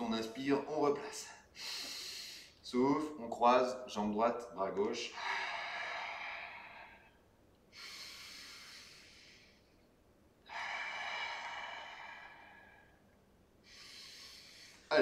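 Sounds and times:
man breathing hard: 1.3s - 2.6s, 5.1s - 9.8s, 10.4s - 15.0s.

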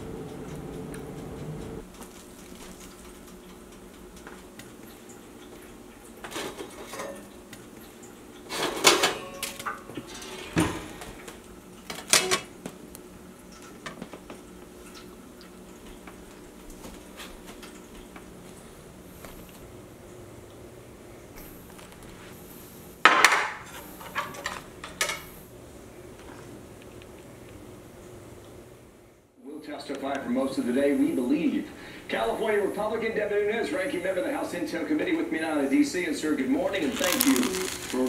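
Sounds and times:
dishes and cutlery clinking: 6.2s - 7.4s, 8.5s - 11.2s, 23.1s - 25.3s.

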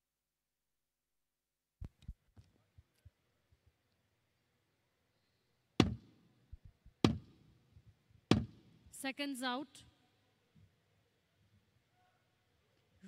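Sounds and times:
sharp ringing knocks: 5.8s - 6.1s, 7.0s - 7.3s, 8.3s - 8.6s
faint dull thumps: 8.3s - 8.6s.

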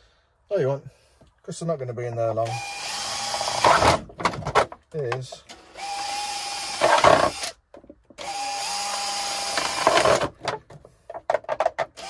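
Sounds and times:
cordless drill boring through plastic: 2.4s - 4.0s, 5.5s - 7.6s, 8.2s - 10.3s.

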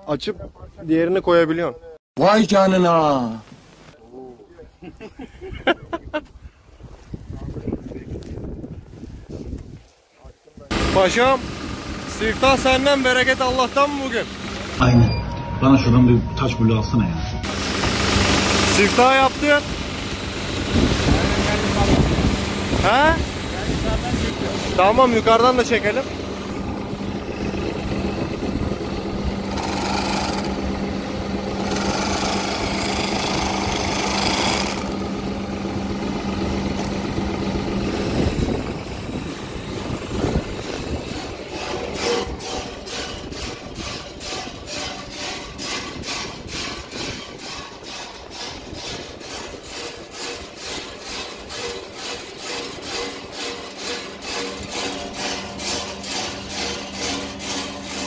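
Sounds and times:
machine humming: 10.7s - 48.0s, 49.4s - 58.0s
machine pulsing: 10.7s - 58.0s.

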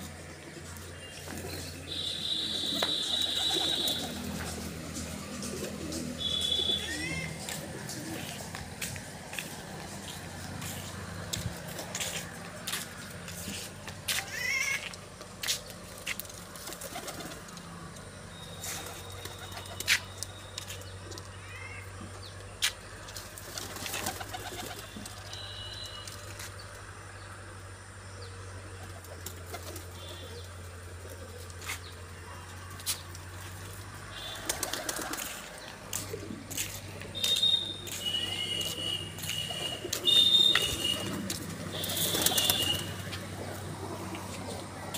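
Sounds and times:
pigeons cooing: 0.4s - 8.8s, 38.2s - 44.9s.

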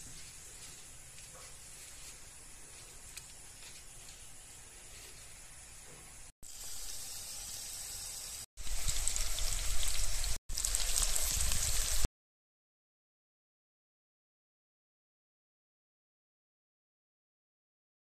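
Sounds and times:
food deep-frying in hot oil: 6.2s - 12.1s.

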